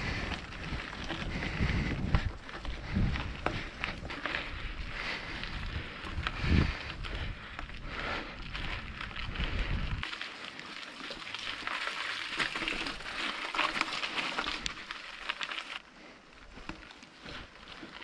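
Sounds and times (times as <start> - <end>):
wind rumble: 0.0 - 10.1
bike tyres crunching on gravel: 0.0 - 18.0.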